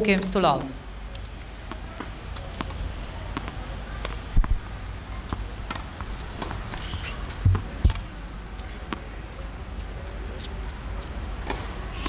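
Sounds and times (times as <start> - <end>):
footsteps on hard court: 5.3 - 8.0.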